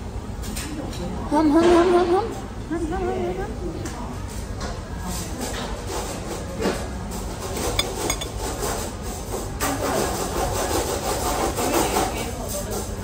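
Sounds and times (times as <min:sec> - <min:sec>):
chopsticks clinking on dishes: 0:07.6 - 0:08.5.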